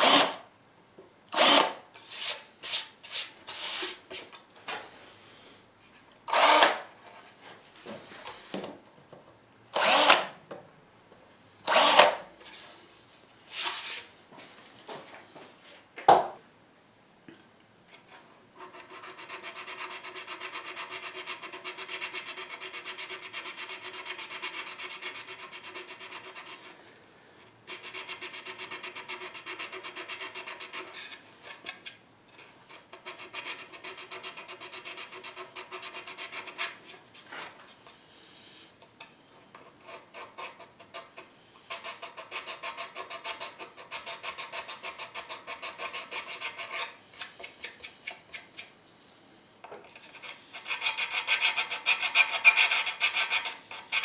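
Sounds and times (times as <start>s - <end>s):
hand file rasping on wood: 18.6s - 26.7s, 50.2s - 54.0s.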